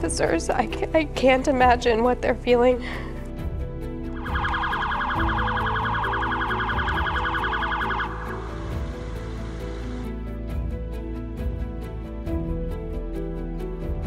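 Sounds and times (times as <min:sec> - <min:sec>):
soft background music: 0:00.0 - 0:14.0
police siren yelping: 0:04.2 - 0:08.8.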